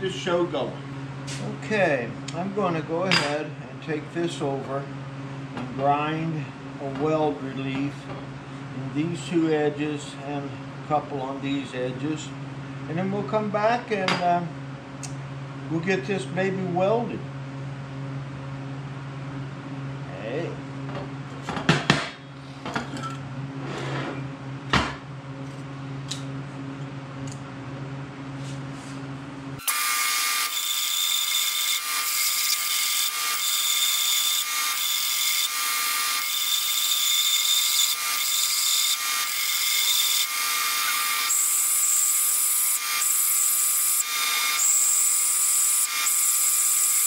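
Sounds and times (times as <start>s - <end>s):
belt sander grinding steel: 29.6s - 47.0s.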